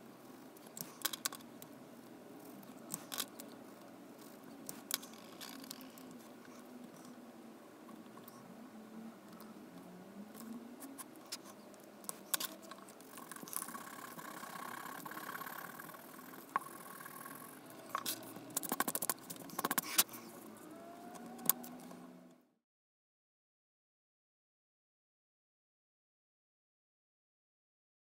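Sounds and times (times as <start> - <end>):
quick clicks: 10.4 - 20.2.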